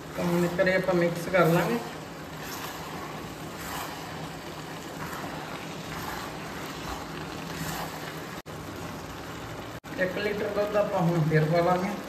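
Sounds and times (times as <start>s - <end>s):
spoon stirring thick pudding: 0.0s - 8.5s
carrots sizzling in milk: 0.0s - 12.0s.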